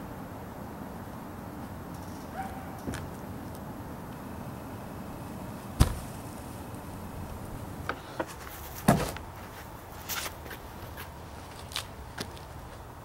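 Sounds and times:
wooden slabs thudding on ground: 5.8s - 6.1s, 8.8s - 9.2s.

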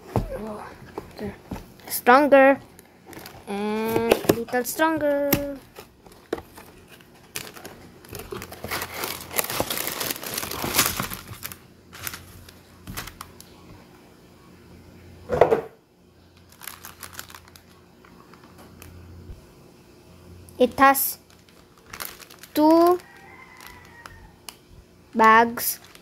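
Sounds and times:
plastic bags crinkling: 2.7s - 13.5s, 16.4s - 19.0s, 21.2s - 24.6s, 25.6s - 26.0s
cardboard box tearing open: 8.2s - 11.4s.

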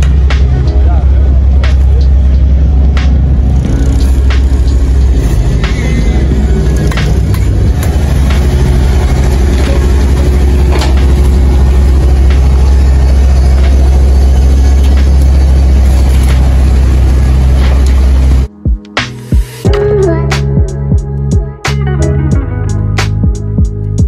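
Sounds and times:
diesel engine rumbling: 0.0s - 18.5s.

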